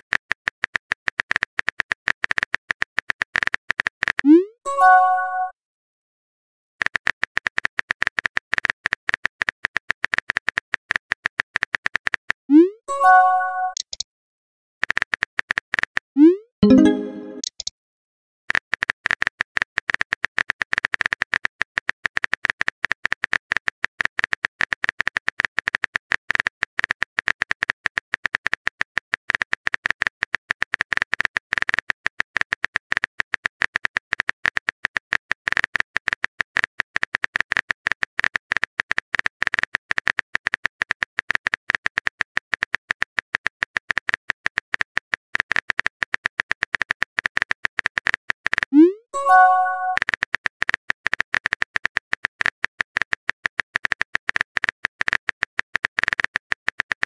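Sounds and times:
phone keyboard typing clicks: 13.0 - 14.0, 48.6 - 50.0.

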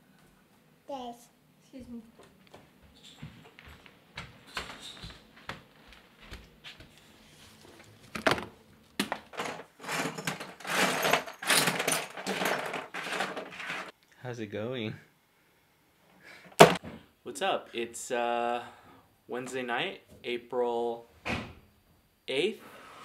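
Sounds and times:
plastic toys rattling in tote: 9.2 - 13.9.

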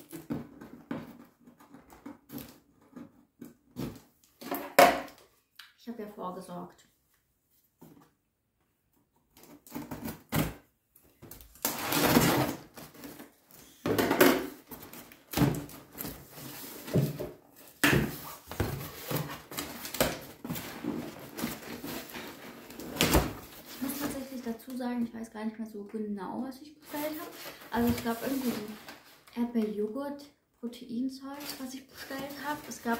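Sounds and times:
cardboard scraping and rustling: 11.7 - 13.5, 14.6 - 24.5, 26.8 - 29.3.

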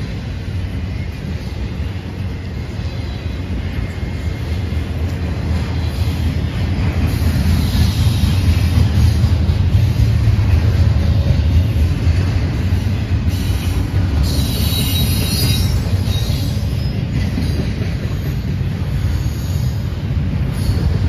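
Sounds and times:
steel wheels rumbling on rail: 0.0 - 21.0
high wheel squeal: 13.3 - 21.0.

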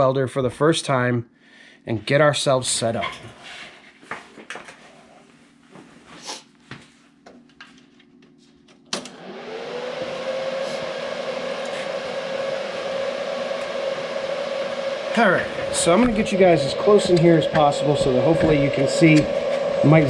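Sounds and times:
cooling fan whirring: 7.1 - 20.0
welder hum: 9.0 - 20.0.

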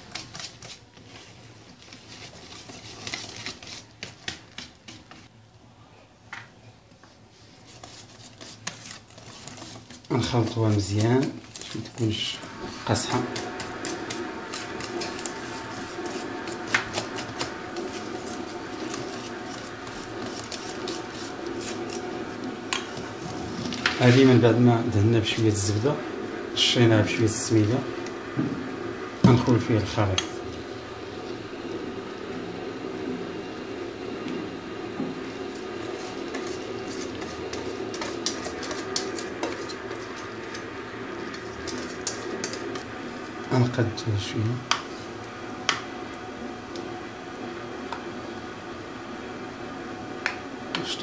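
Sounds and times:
utensil scraping metal bowl: 7.6 - 24.5, 35.5 - 43.5
low hum: 12.3 - 44.1.

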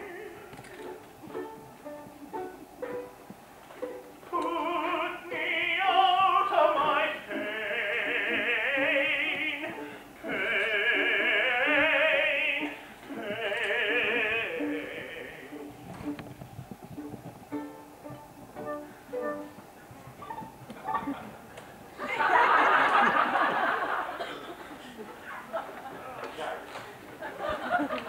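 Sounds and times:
operatic singing: 0.0 - 0.5, 4.2 - 15.8
instrumental accompaniment: 0.0 - 5.7, 6.7 - 21.3.

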